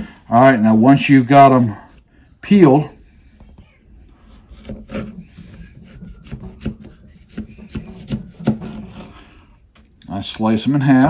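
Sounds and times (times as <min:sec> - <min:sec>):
knife cutting on wooden board: 0:04.2 - 0:09.1.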